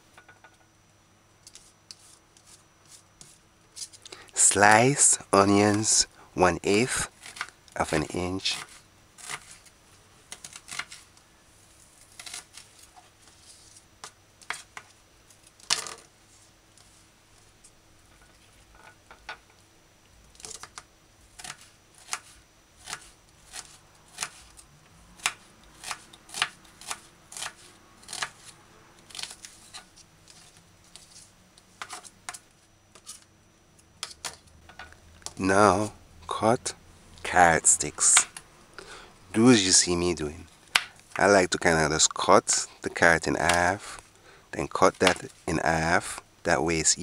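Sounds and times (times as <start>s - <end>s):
knife slicing onion: 21.4s - 24.6s, 25.2s - 29.8s.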